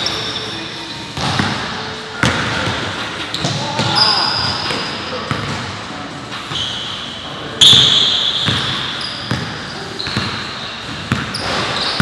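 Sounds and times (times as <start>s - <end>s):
sneakers squeaking: 0.0s - 12.0s
basketball bouncing: 1.2s - 4.0s, 8.4s - 12.0s.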